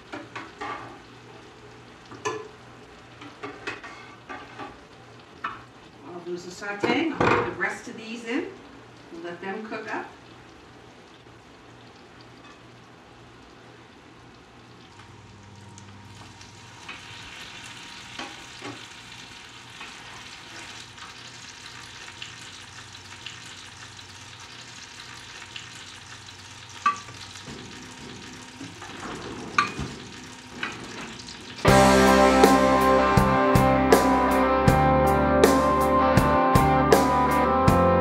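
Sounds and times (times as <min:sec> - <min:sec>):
dumplings sizzling in butter: 0:15.9 - 0:33.1.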